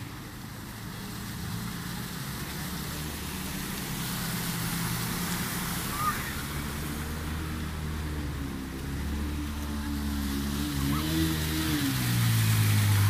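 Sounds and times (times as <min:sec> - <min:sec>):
motorcycle engines running: 0:00.0 - 0:13.0
water splashing: 0:00.0 - 0:13.0.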